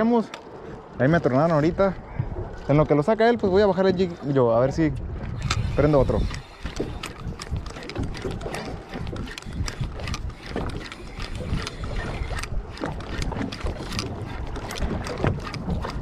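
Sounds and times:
water slapping against boat: 0.0 - 16.0
wind buffeting microphone: 0.0 - 16.0
small irregular clicks and knocks: 5.2 - 16.0.

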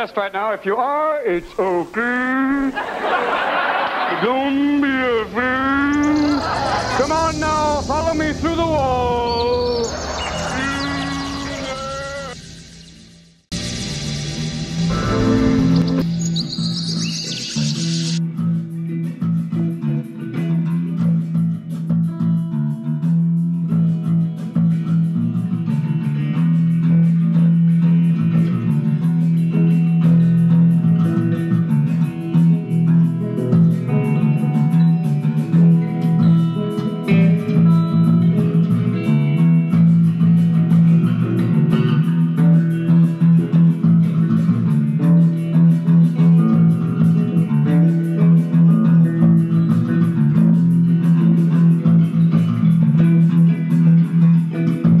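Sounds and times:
electric guitar and bass jam: 4.1 - 55.0.

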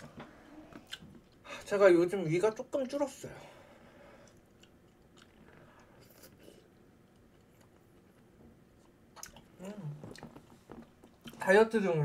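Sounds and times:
soft close chewing: 0.1 - 1.5, 4.1 - 11.5
wet mouth clicks: 9.2 - 9.5.

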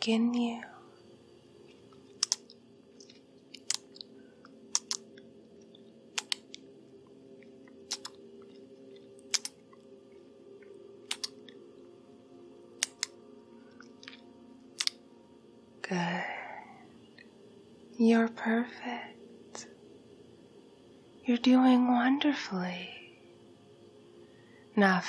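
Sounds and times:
faint steady hum: 0.0 - 25.0
wet lip smacks and clicks: 2.2 - 4.1, 4.7 - 5.2, 7.9 - 8.6, 9.3 - 9.6, 11.1 - 11.6, 14.8 - 15.0.

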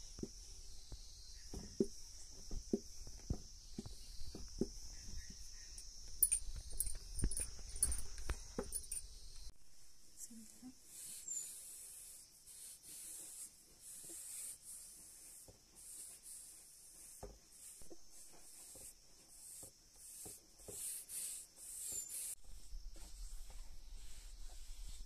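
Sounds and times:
faint scraping strokes: 10.4 - 25.0.

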